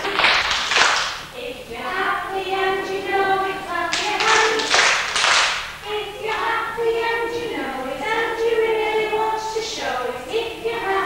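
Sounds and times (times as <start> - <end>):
hand claps: 0.0 - 1.3, 3.9 - 5.7
children singing: 0.0 - 11.0.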